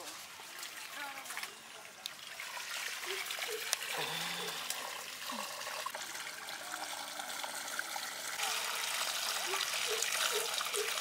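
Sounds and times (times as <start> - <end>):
water splashing onto stony ground: 0.0 - 7.4.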